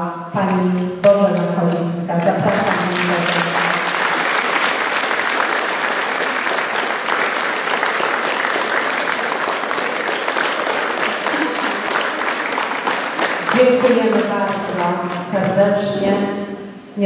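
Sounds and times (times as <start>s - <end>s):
audience applauding: 2.5s - 15.3s.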